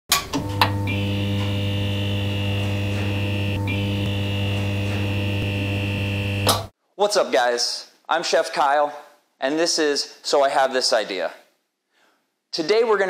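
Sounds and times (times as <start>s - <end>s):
electrical mains hum: 0.2s - 6.7s
high whine: 0.6s - 6.7s.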